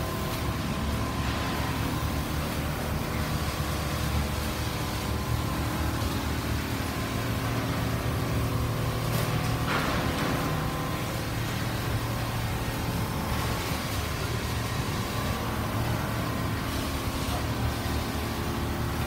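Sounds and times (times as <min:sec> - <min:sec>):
quilting machines humming: 0:00.0 - 0:19.0.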